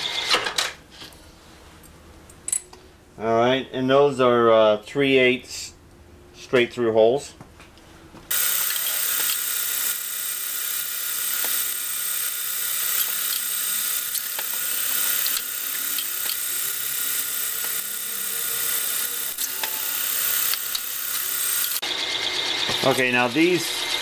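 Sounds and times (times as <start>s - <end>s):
drill spindle whining: 8.3s - 24.0s.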